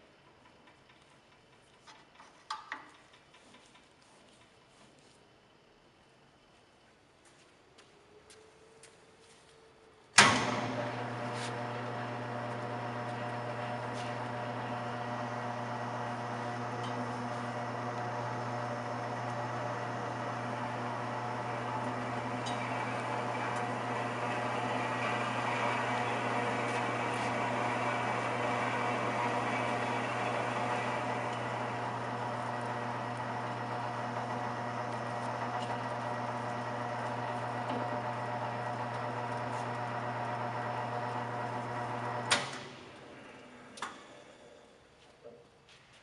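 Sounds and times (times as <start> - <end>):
wood lathe motor hum: 10.4 - 44.6.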